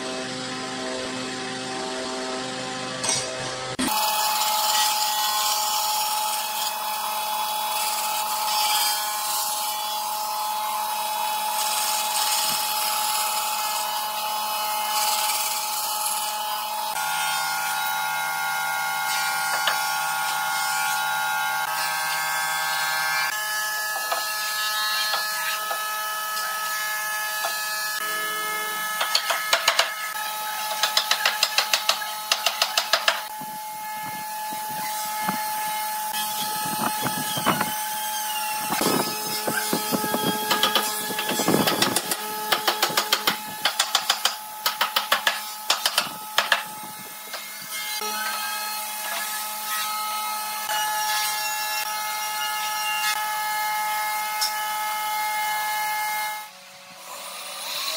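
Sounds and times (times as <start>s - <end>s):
bandsaw cutting wood: 1.1s - 57.9s.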